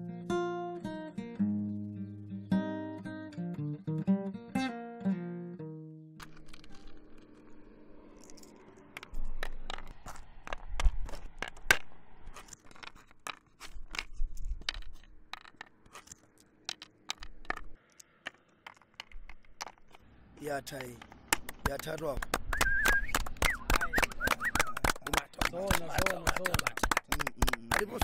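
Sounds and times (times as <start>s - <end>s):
small stones clicking on a board: 6.2s - 7.4s, 8.0s - 20.0s, 20.7s - 28.0s.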